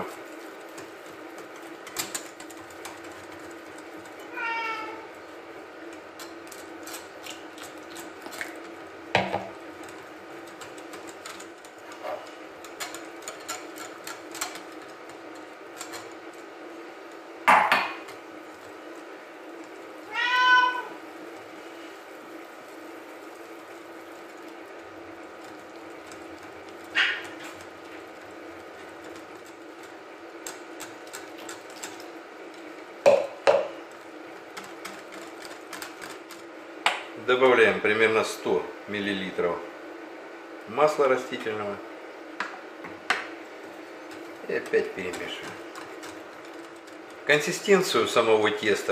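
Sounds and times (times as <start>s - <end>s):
utensils knocking on bowl: 33.1s - 33.7s.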